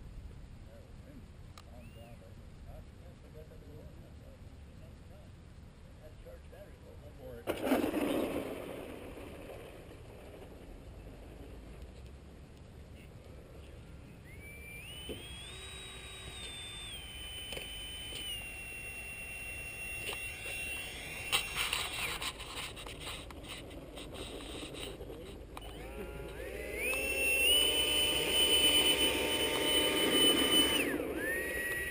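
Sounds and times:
electric ducted fan whining: 8.9 - 31.9.

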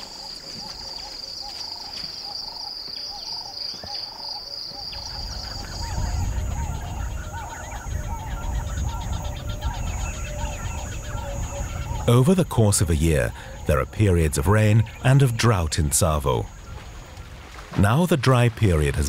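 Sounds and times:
bird calling: 0.0 - 19.0.

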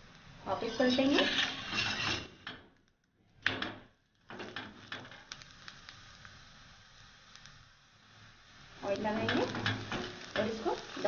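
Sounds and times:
spatula scraping a hot griddle: 0.5 - 2.5, 4.3 - 11.0.

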